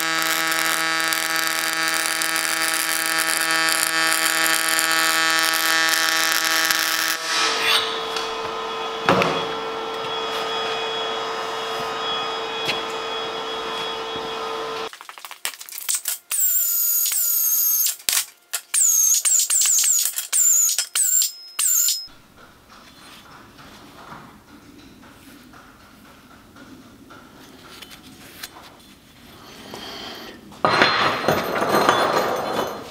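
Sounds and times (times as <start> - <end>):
steady hum: 0.0 - 14.9
welding arc buzzing: 0.0 - 22.1
sharp squeaks sliding down: 7.2 - 8.4, 16.3 - 18.0, 18.6 - 22.2.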